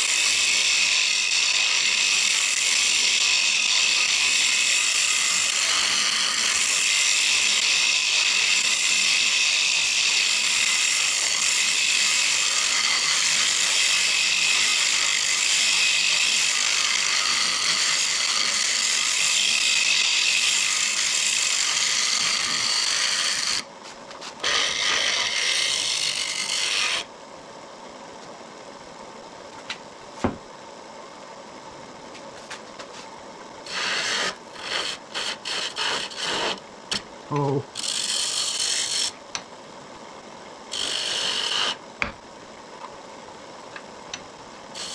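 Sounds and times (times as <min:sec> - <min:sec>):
gouge cutting wood on lathe: 0:00.0 - 0:23.7, 0:24.4 - 0:27.1, 0:33.6 - 0:37.0, 0:37.8 - 0:39.2, 0:40.7 - 0:41.8
lathe running: 0:00.0 - 0:23.7, 0:24.4 - 0:27.0, 0:33.7 - 0:36.6, 0:40.7 - 0:41.8.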